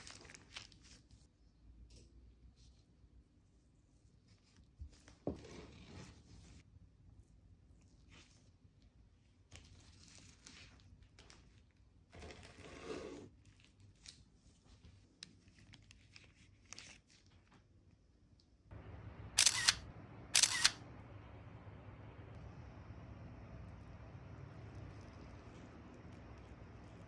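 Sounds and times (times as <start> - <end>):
low room hum: 17.2 - 27.0
sharp clicks: 19.4 - 20.8.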